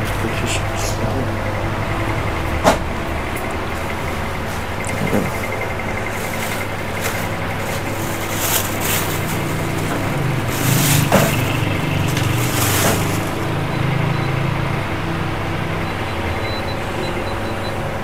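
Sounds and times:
steady low hum: 0.0s - 18.0s
plastic bag rustling and crinkling: 6.1s - 13.6s.

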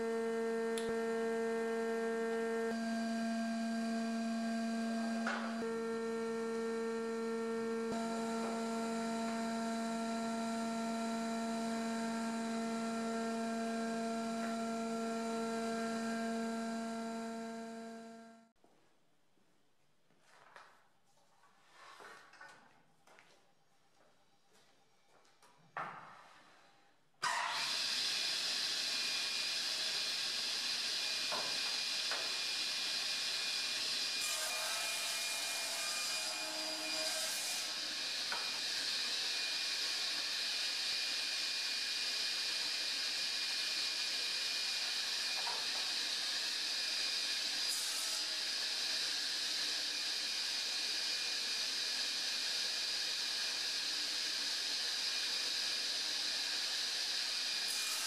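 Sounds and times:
panel saw running idle: 27.3s - 34.3s, 37.6s - 47.7s, 48.4s - 57.9s.

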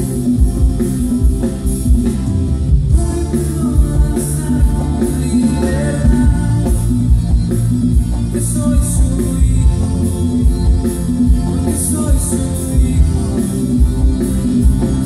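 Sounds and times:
worship band playing: 0.0s - 15.0s
person singing: 2.9s - 7.5s.

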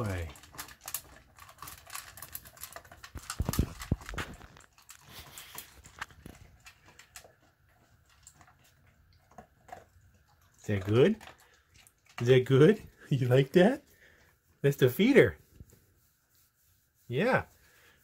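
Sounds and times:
dog crunching dry kibble: 0.0s - 13.7s.

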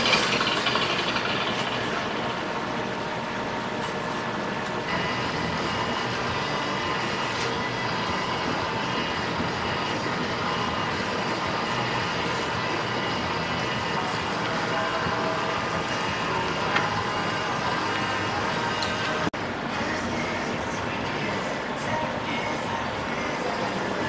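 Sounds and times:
workshop machine droning: 0.0s - 24.0s.

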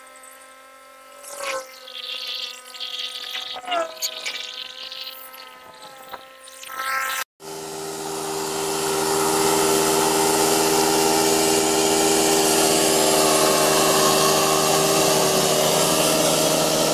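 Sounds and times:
lawn mower engine running: 7.4s - 16.9s.

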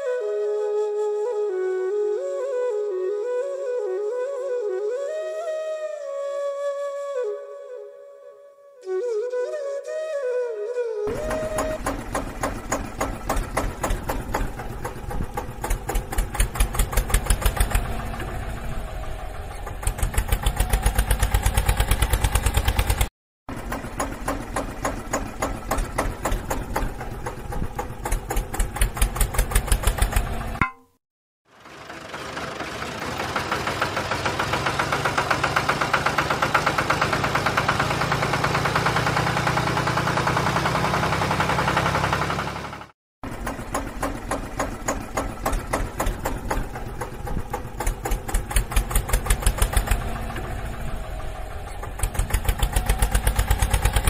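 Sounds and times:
tractor engine chugging: 11.1s - 30.8s, 31.5s - 54.0s.

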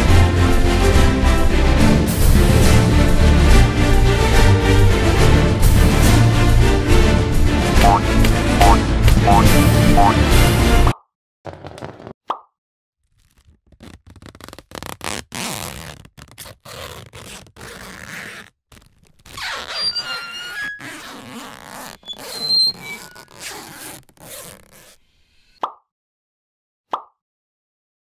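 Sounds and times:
high squeaks: 7.8s - 8.0s, 8.6s - 10.1s, 19.3s - 25.6s
cartoon squeezing sound effects: 7.8s - 10.2s
rubbing and scraping noises: 13.1s - 25.1s.

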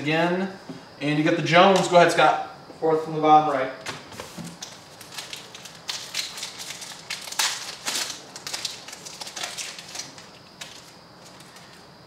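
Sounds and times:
foil wrapper tearing and crinkling: 4.6s - 11.7s.

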